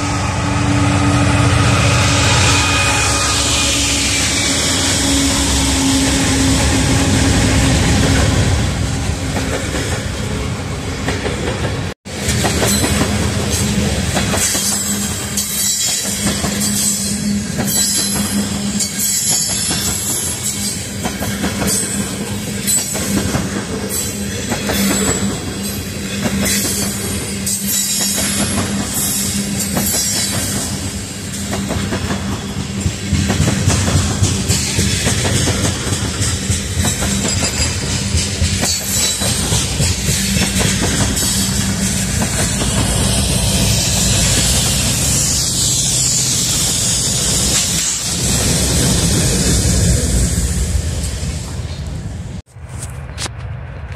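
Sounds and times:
diesel locomotives rumbling: 0.0 - 53.9
wheels squealing: 12.4 - 52.0.

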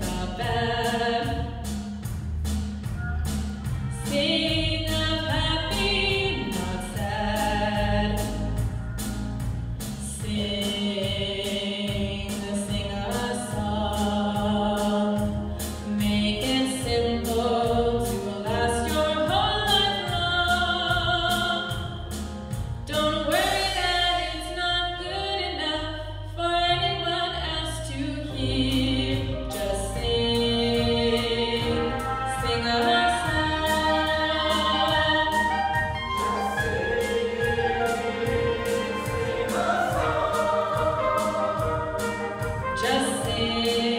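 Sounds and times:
band with drum beat: 0.0 - 23.8, 28.6 - 43.9
choir singing: 29.8 - 43.9.

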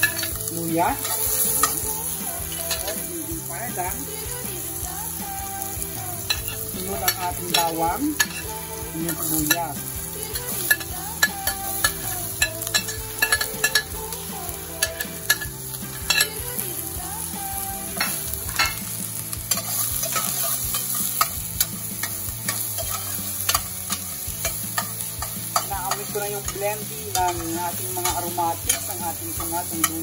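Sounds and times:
metal utensil scraping pot: 0.0 - 3.0, 6.3 - 14.1, 14.8 - 16.4, 18.0 - 18.9, 19.5 - 30.0
onions sizzling in oil: 0.0 - 30.0.

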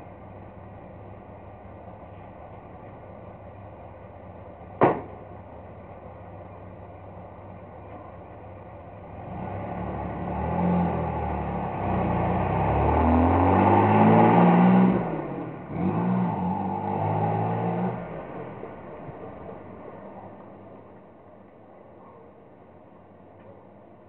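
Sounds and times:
car exhaust accelerating past: 9.1 - 21.1.

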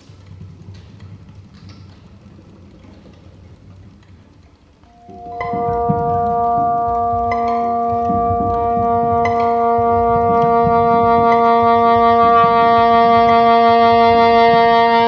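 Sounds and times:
chamber orchestra sustained chord: 4.9 - 15.0
soprano saxophone: 4.9 - 15.0
struck ringing notes: 4.9 - 15.0.

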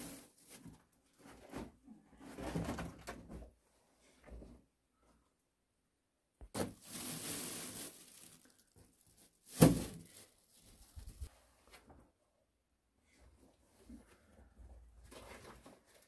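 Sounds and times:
rustling scrape: 9.5 - 11.5.

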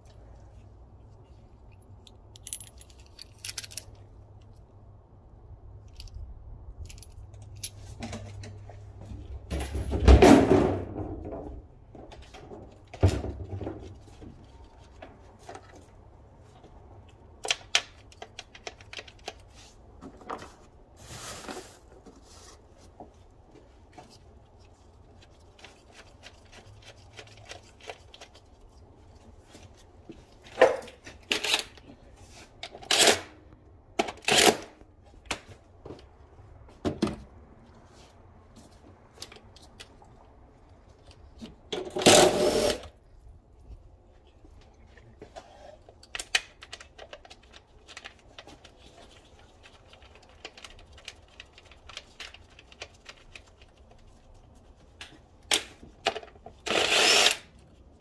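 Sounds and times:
rustling clatter of parts: 1.2 - 4.6, 5.8 - 16.0, 17.5 - 33.3.

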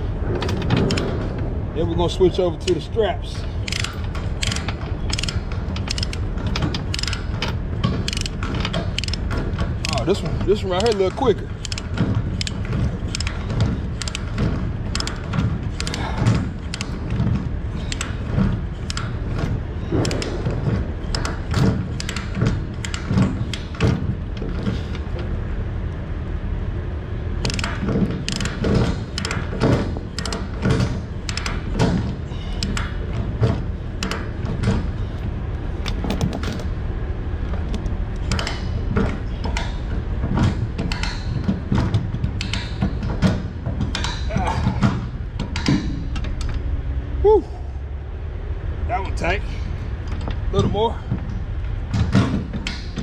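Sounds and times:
ratchet pawl clicking: 3.6 - 7.4, 8.0 - 16.1.

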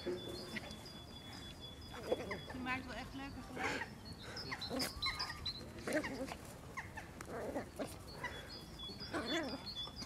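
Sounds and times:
puppies yipping and whining: 3.4 - 10.0.

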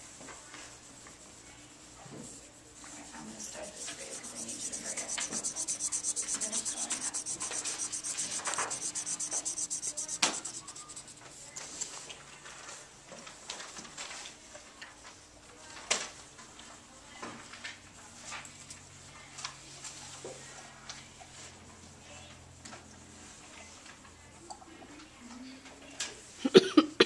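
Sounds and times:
marker scribbling on paper: 2.2 - 11.3.

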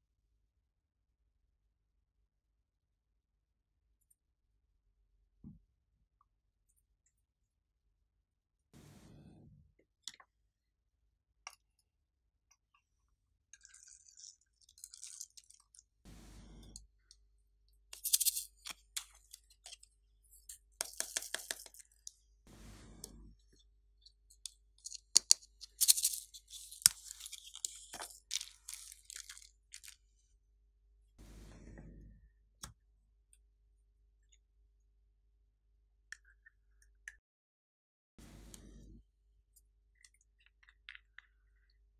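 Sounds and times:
foam beads and sequins crackling: 13.6 - 16.9, 17.9 - 23.6, 24.3 - 30.1.

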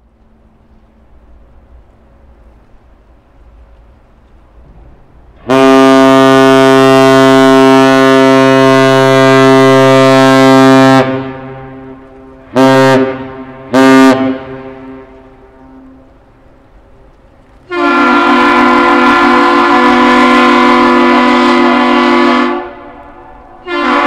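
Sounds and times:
deep ship's whistle blasts: 5.4 - 16.0, 17.7 - 24.0.

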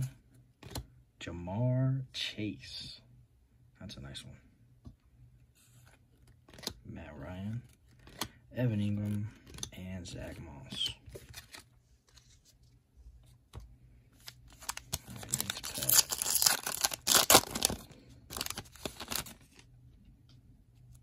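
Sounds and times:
foil wrapper tearing and crinkling: 14.5 - 19.5.

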